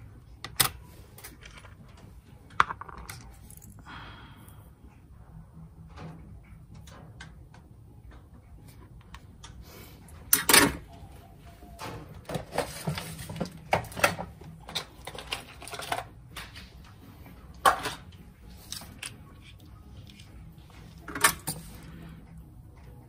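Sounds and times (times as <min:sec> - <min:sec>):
small tools clicking and clattering: 0:12.2 - 0:16.6, 0:21.0 - 0:21.8.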